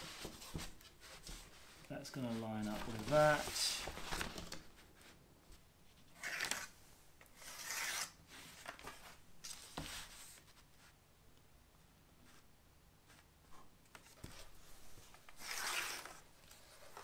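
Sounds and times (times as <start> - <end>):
paper rustling: 0.0 - 5.2.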